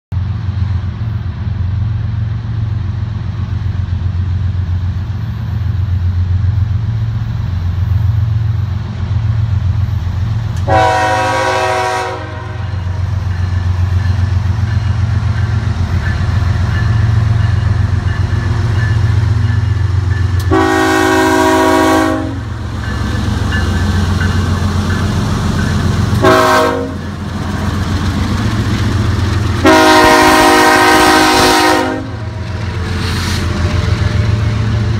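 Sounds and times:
diesel locomotives rumbling: 0.1s - 34.9s
train air horn blasts: 10.6s - 13.0s, 20.4s - 22.5s, 26.1s - 27.1s, 29.6s - 32.2s.

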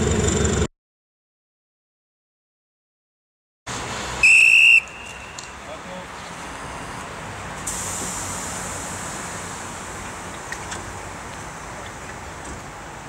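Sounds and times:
steady high hiss: 3.8s - 13.0s
shrill whistle blast: 4.2s - 5.5s.

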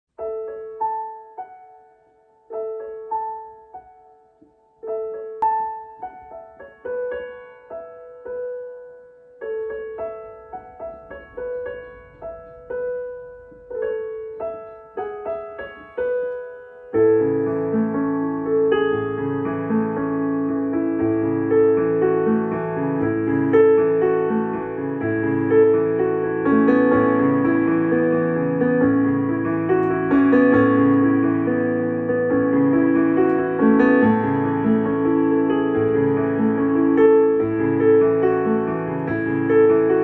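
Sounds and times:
digital piano melody: 0.1s - 40.0s.

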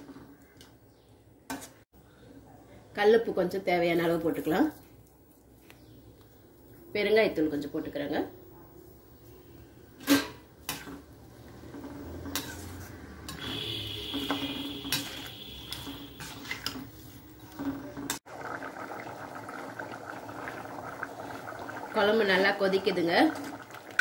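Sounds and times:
thick curry bubbling: 9.2s - 24.0s.

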